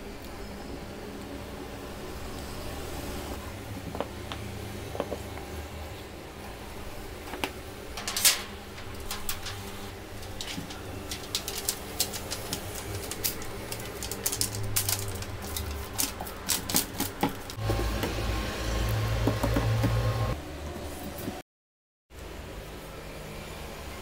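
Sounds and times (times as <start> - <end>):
steady low hum: 0.0 - 16.5
aluminium foil crinkling: 8.0 - 17.6.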